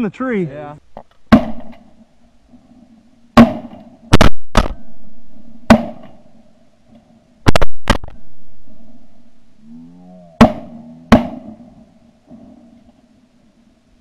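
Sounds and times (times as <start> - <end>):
faint steady drone: 0.3 - 14.0
sharp drum hits: 1.3 - 1.8, 3.4 - 4.8, 5.7 - 6.2, 10.4 - 11.6.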